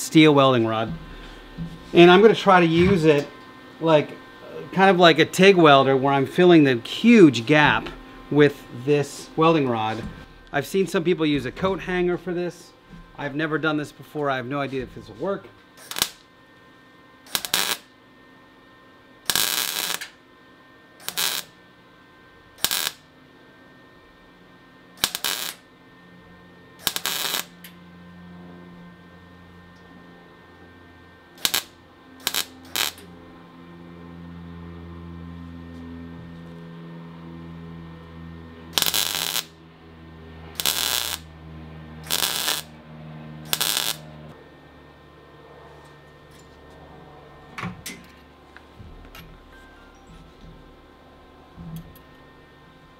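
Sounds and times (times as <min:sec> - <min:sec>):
low machine hum: 0:00.0 - 0:52.9
welder arc bursts: 0:15.8 - 0:16.3, 0:17.2 - 0:17.9, 0:19.2 - 0:20.2, 0:21.0 - 0:21.6, 0:22.6 - 0:23.1, 0:25.0 - 0:25.7, 0:26.8 - 0:27.6, 0:31.4 - 0:33.1, 0:38.7 - 0:39.6, 0:40.5 - 0:41.3, 0:42.0 - 0:42.8, 0:43.4 - 0:44.1.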